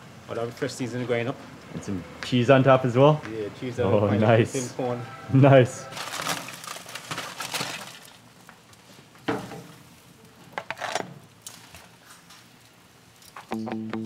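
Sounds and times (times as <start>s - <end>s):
faint sizzle: 5.8s - 14.0s
metal tongs clinking on grill grate: 13.1s - 13.6s.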